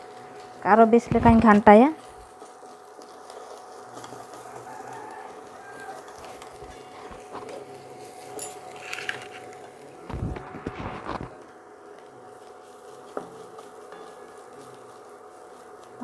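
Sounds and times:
faint chicken calls: 4.2 - 7.1.

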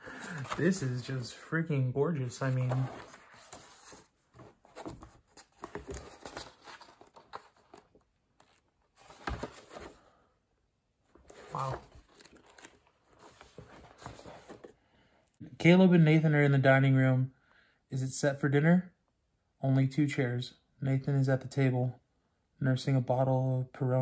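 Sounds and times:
book pages rustling: 0.0 - 1.4, 2.3 - 10.1, 11.1 - 14.8.

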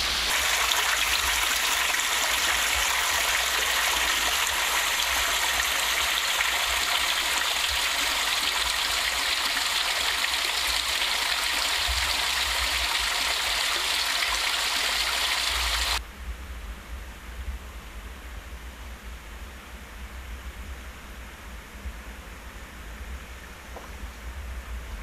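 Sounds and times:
water rushing through lock gates: 0.0 - 16.0.

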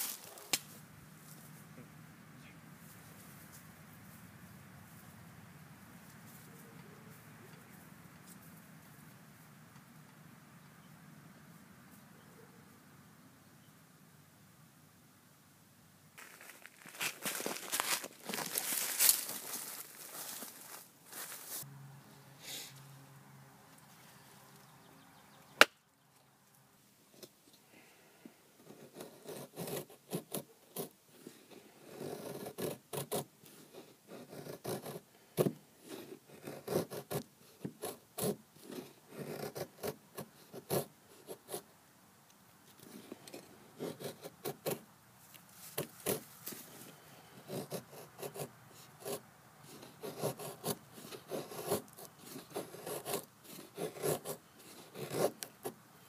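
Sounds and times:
knife scraping dry wood: 28.6 - 41.7, 42.7 - 44.9, 45.6 - 55.8.

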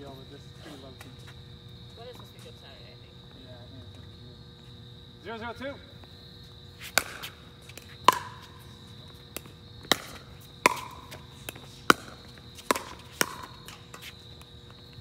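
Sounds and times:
paddles hitting plastic ball: 6.9 - 14.5.

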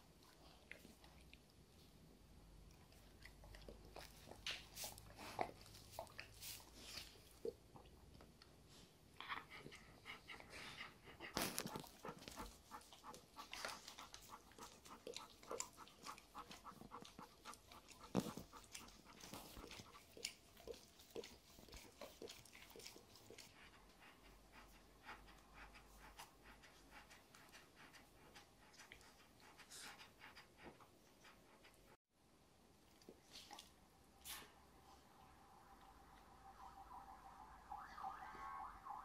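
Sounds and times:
dogs panting: 9.2 - 32.0.

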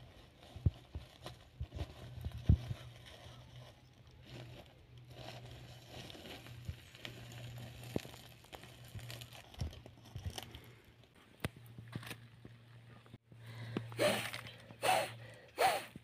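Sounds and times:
aluminium foil crinkling: 0.0 - 10.9
coal pieces crunching: 4.1 - 10.8.

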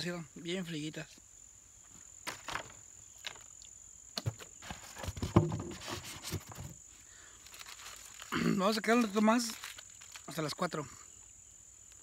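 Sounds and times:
high insect buzz: 0.0 - 12.0
irregular knocks and rustles: 4.2 - 6.9.

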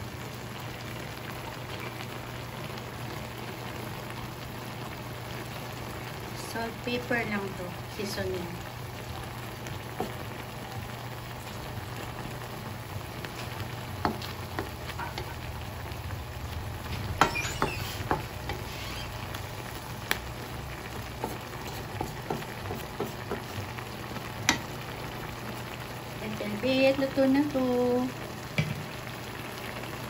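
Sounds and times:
food sizzling in a wok: 0.0 - 30.0
spatula scraping a pan: 14.1 - 15.4, 17.0 - 19.2, 21.2 - 23.5.

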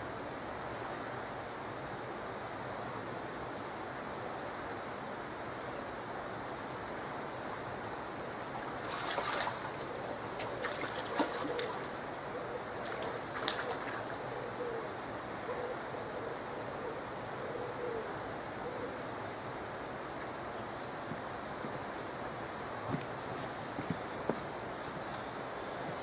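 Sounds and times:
small splashes and clicks: 8.4 - 12.2, 12.8 - 14.1.

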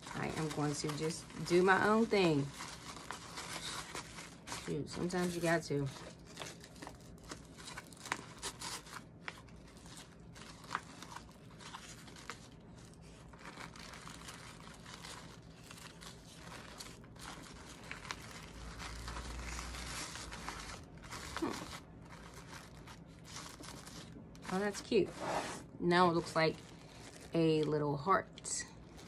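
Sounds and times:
tissue paper and ribbon rustling: 0.0 - 29.0.

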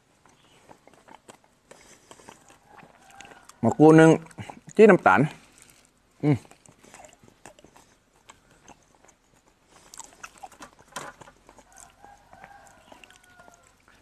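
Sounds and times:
chewing: 0.0 - 14.0.

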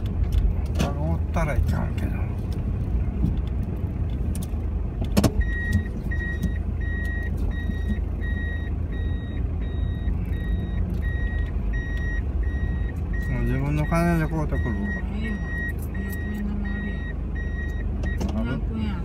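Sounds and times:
reverse warning beeper: 5.4 - 19.0.

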